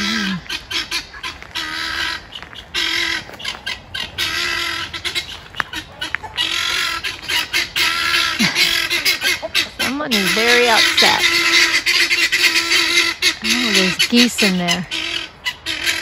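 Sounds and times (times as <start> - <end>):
geese honking: 0.0 - 16.0
person speaking: 9.8 - 11.3, 13.4 - 14.8.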